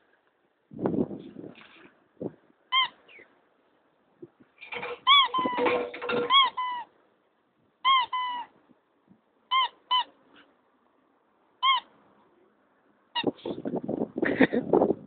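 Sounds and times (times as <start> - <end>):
squeaky dog toy squeaking: 2.7 - 3.0, 4.7 - 6.9, 7.8 - 8.5, 9.5 - 10.2, 11.6 - 11.9.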